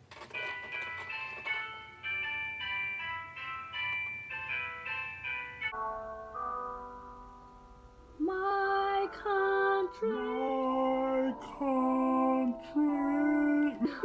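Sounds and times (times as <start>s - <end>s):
held instrument chord: 1.0s - 13.9s
girl singing slow held notes: 8.2s - 14.0s.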